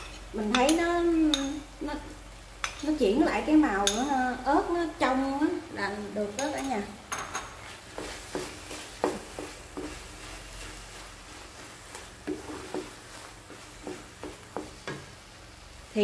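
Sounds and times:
faint sizzle: 0.0 - 16.0
wooden spatula scraping pan: 6.5 - 15.2.

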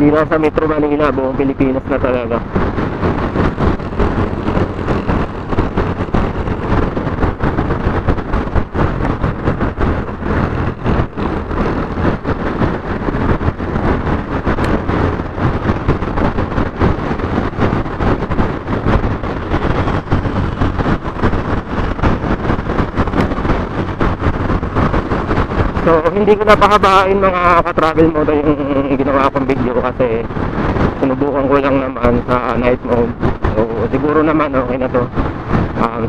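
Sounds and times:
wind buffeting microphone: 0.0 - 36.0
motorcycle engine: 1.6 - 29.1.

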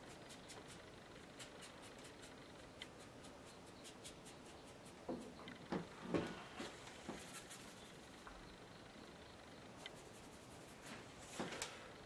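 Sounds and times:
knocks and rubs: 4.9 - 7.8.

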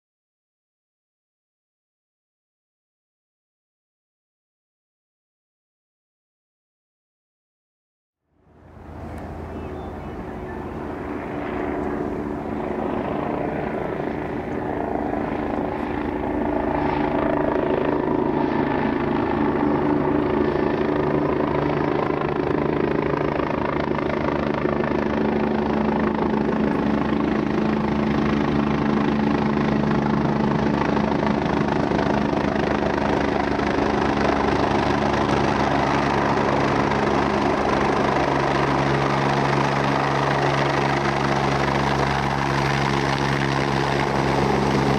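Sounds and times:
helicopter engines and rotor: 8.4 - 44.9.

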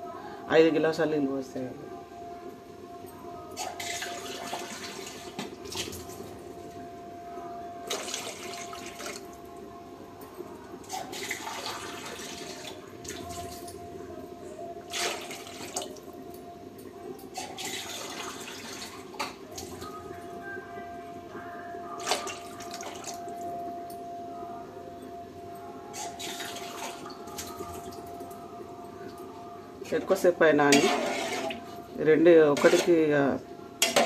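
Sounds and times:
steady low hum: 0.0 - 34.0
water pouring into a steel pot: 11.0 - 13.3.

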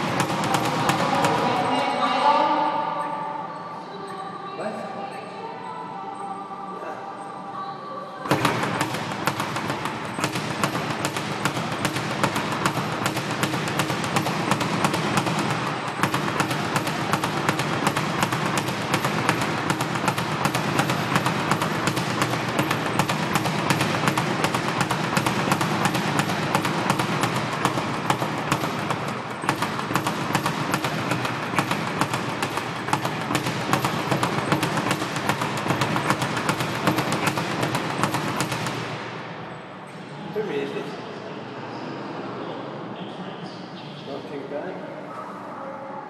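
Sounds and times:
speed bag rattling on rebound board: 0.0 - 1.8, 8.3 - 39.4.

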